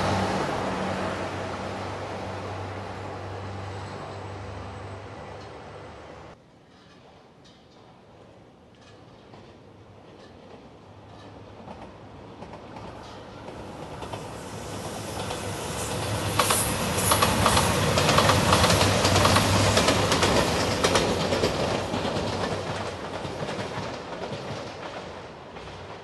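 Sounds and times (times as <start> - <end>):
diesel train passing: 0.0 - 6.4, 8.8 - 26.0
wheels clattering over rail joints: 16.3 - 26.0.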